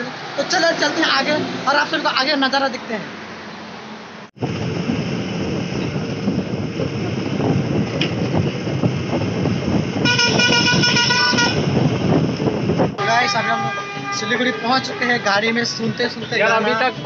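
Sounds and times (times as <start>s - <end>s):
bus engine and road rumble: 0.0s - 17.0s
vehicle horn: 10.0s - 11.8s, 13.0s - 17.0s.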